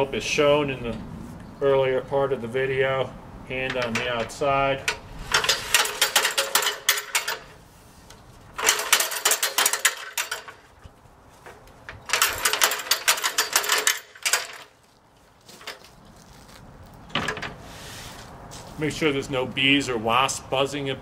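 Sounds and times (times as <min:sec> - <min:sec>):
ladder rattling and clicking: 0:03.6 - 0:14.9, 0:15.5 - 0:15.9, 0:17.0 - 0:17.6.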